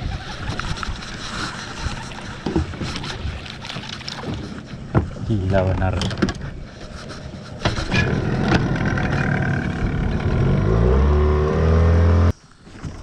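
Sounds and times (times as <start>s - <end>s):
outboard motor running: 7.6s - 12.4s.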